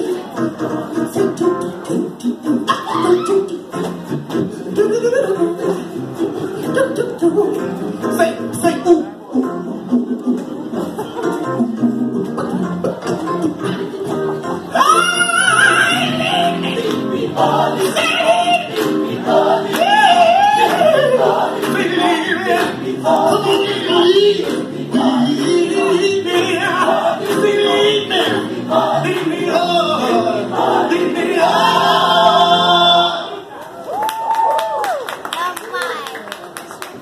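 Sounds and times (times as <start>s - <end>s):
lead voice singing: 0.0s - 7.8s, 11.7s - 33.5s
gospel choir singing: 14.2s - 33.6s.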